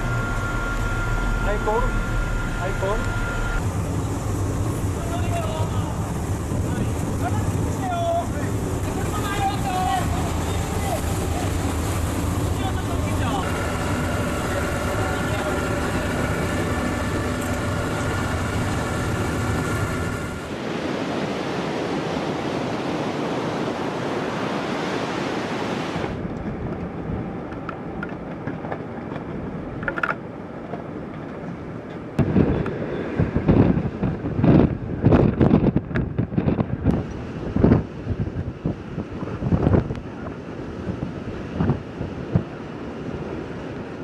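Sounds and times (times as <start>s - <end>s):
ship machinery humming: 0.0s - 33.2s
rush of wind and rain: 0.0s - 44.0s
wind gusts buffeting microphone: 1.2s - 44.0s.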